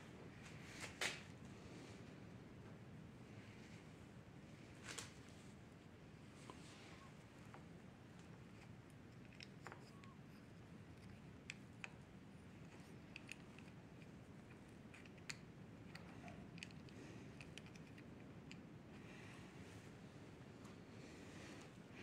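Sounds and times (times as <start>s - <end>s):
small plastic clicks and ticks: 12.6s - 18.7s.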